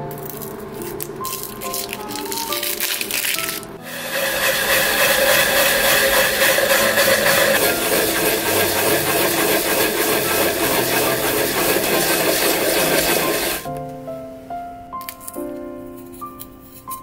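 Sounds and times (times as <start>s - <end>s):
soft background music: 0.0s - 4.2s, 7.6s - 17.0s
onion grating wet rasping: 0.2s - 13.7s.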